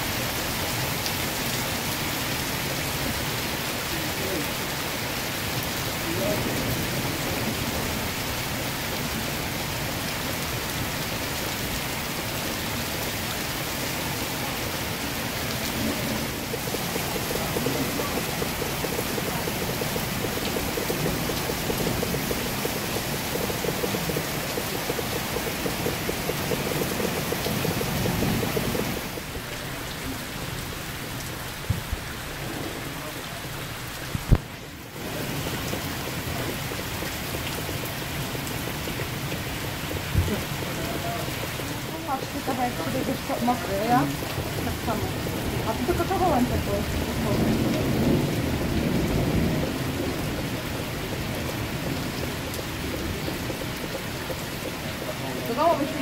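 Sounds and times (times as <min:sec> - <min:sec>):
heavy rain on flooded paving: 0:00.0 - 0:56.0
sharp taps: 0:16.4 - 0:29.2.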